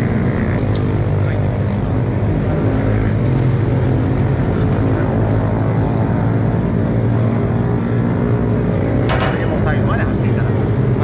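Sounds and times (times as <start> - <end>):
constant rushing noise: 0.0 - 11.0
motorcycle engine running: 9.1 - 10.5.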